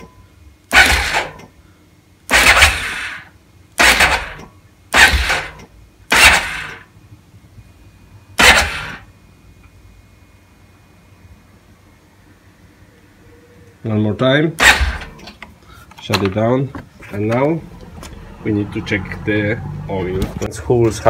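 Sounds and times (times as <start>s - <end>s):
electric starter cranking engine: 0.7s - 1.5s, 2.3s - 6.9s, 8.4s - 9.1s, 14.6s - 15.4s.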